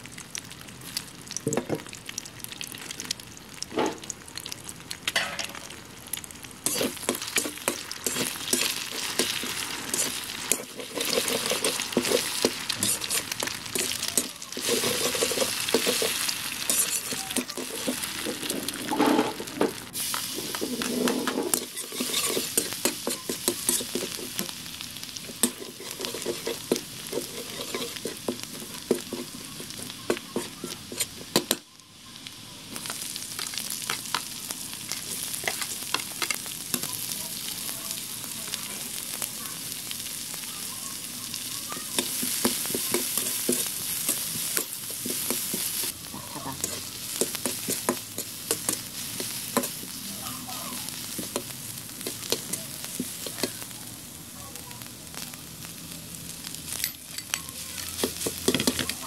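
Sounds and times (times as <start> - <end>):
vegetables sizzling in hot oil: 0.0 - 59.0
metal spatula scraping a pan: 6.6 - 24.5, 25.2 - 31.5.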